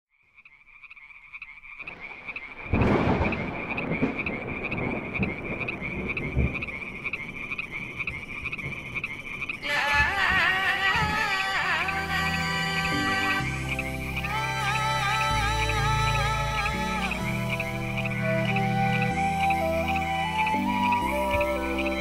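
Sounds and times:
music with wavering held tones: 0:09.4 - 0:22.0.

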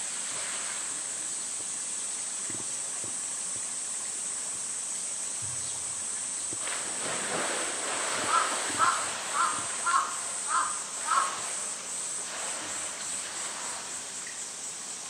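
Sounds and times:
insect chorus: 0:00.0 - 0:15.0
water splashing: 0:06.5 - 0:15.0.

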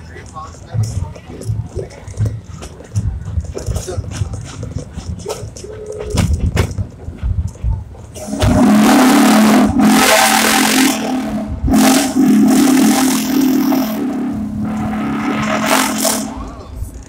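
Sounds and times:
knocks from moving train: 0:06.0 - 0:07.4
steam locomotive whistle blowing: 0:08.2 - 0:16.6.

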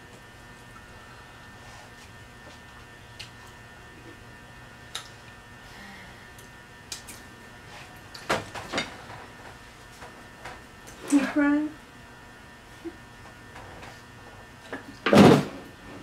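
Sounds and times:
electrical mains hum: 0:00.0 - 0:16.0.

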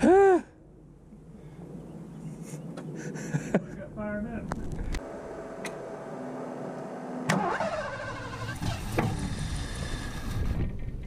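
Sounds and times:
car engine cranking and running roughly: 0:07.3 - 0:10.6.

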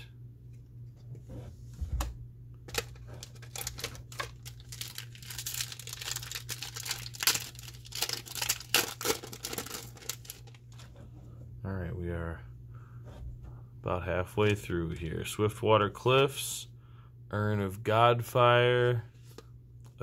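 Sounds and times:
foil wrapper tearing and crinkling: 0:02.7 - 0:10.6.

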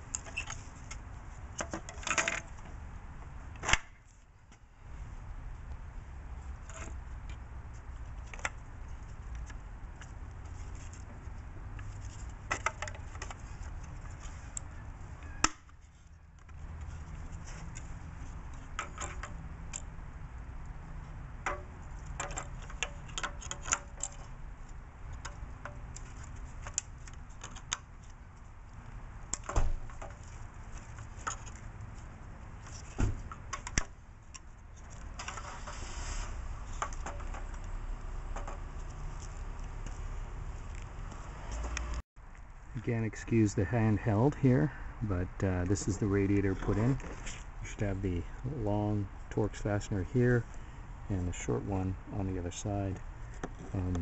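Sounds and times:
hard plastic parts clicking: 0:12.2 - 0:14.7, 0:21.4 - 0:24.3.

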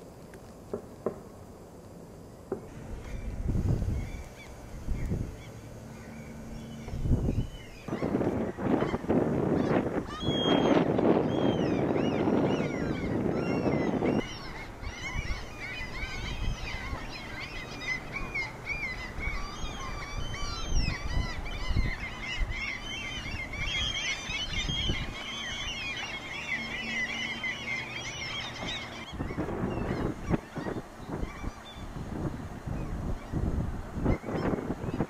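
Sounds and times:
wind buffeting microphone: 0:02.2 - 0:35.0
small birds chirping: 0:02.6 - 0:35.0.

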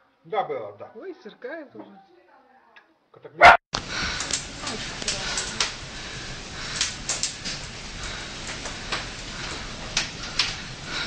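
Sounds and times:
storm wind rushing: 0:03.8 - 0:11.0.

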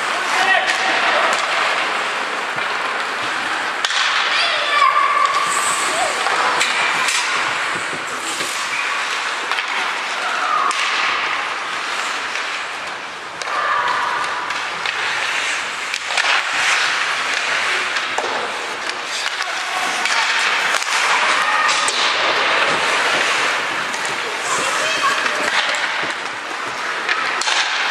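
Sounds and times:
hockey sticks and puck knocking: 0:00.0 - 0:27.9
skates scraping across ice: 0:00.0 - 0:27.9
young players calling: 0:04.2 - 0:06.8.

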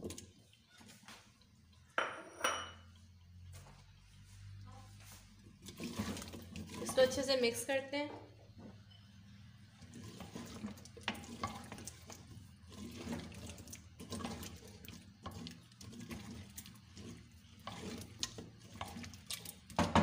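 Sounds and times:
wooden spoon scraping a clay pot: 0:04.8 - 0:07.6, 0:09.6 - 0:19.8.

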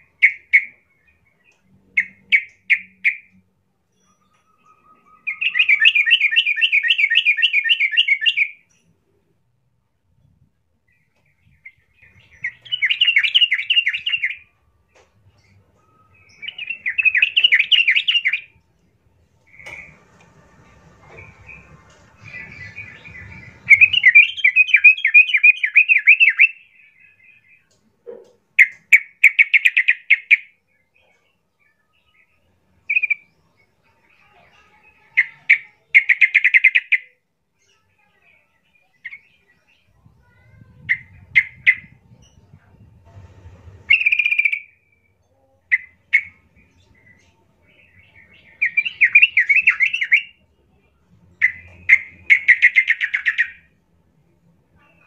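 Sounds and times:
bird singing chattering phrases: 0:00.0 - 0:03.4, 0:05.2 - 0:08.8, 0:10.9 - 0:14.5, 0:16.2 - 0:18.6, 0:21.0 - 0:27.8, 0:34.0 - 0:37.8, 0:38.8 - 0:42.5, 0:45.7 - 0:53.7.

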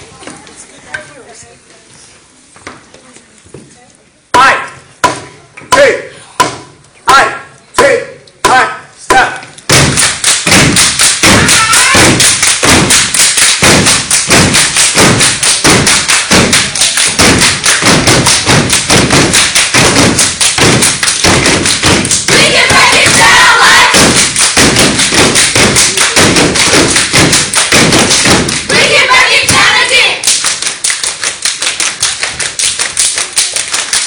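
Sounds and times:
hand claps: 0:09.6 - 0:34.0
stomping on hard floor: 0:09.7 - 0:29.8.

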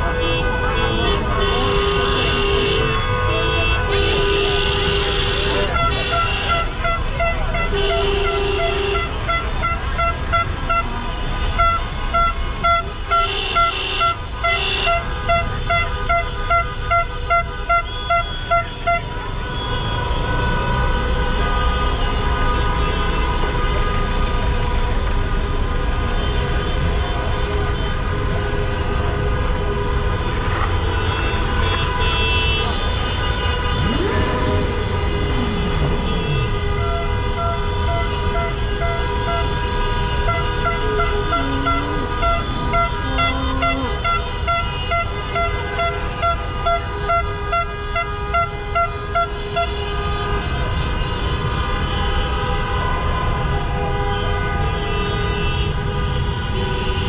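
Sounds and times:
traffic din: 0:00.0 - 0:57.0
held horn tones: 0:30.6 - 0:49.5
car horn short beeps: 0:31.7 - 0:39.4, 0:40.3 - 0:47.2.

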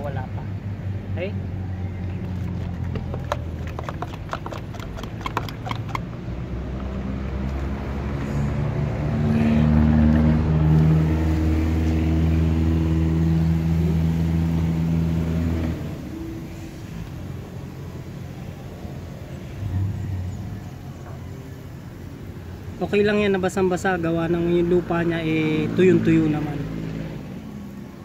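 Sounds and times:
motor engine humming: 0:01.4 - 0:07.8.

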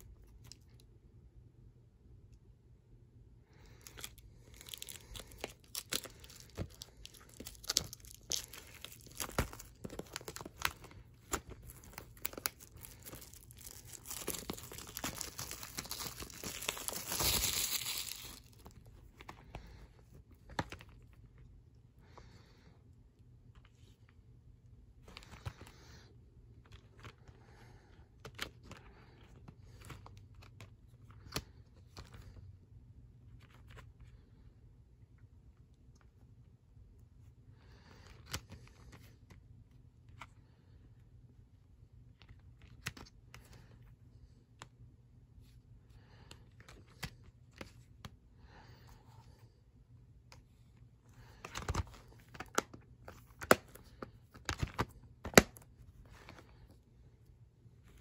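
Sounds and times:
plastic rustling: 0:03.5 - 0:21.1.

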